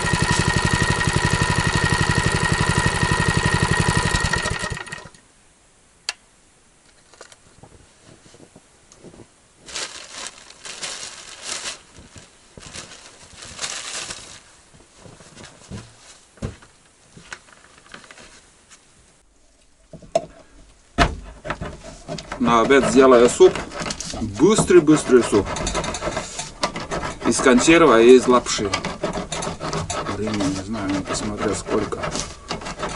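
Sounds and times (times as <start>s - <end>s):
material rustling and crinkling: 6.9s - 28.8s.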